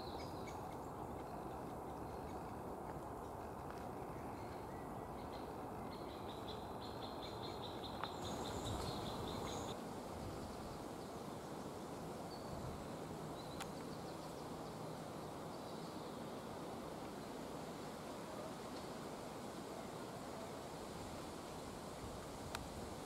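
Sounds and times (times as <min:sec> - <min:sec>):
outdoor background noise: 0:00.0 - 0:23.0.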